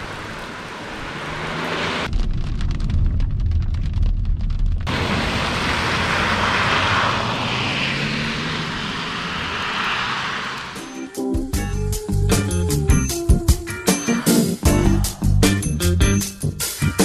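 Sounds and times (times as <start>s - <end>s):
tyres hissing on wet road: 0.0s - 2.1s, 4.9s - 11.5s
car engine low rumble: 0.0s - 13.0s.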